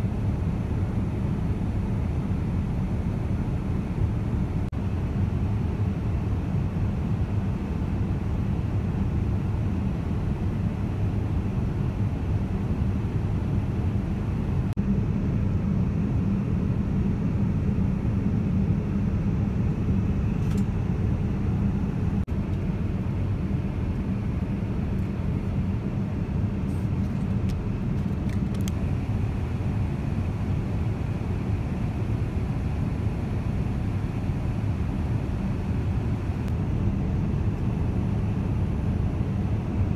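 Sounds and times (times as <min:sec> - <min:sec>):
airplane cabin rumble: 0:00.0 - 0:39.9.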